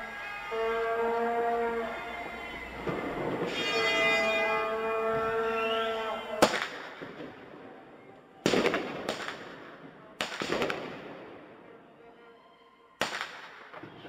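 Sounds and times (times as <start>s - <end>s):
blaring horn chord: 0.4s - 6.4s.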